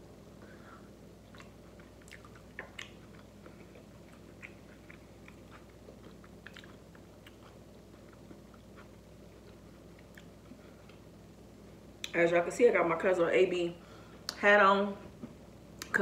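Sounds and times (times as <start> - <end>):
person chewing food: 1.1 - 11.1.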